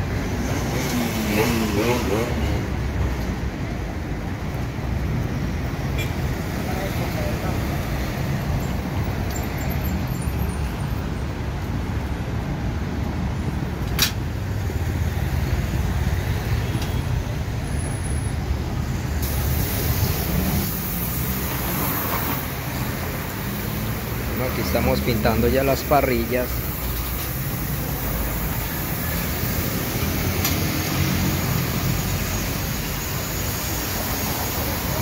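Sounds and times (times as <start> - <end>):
motor vehicle rumble: 0.0 - 35.0
high hiss: 19.2 - 35.0.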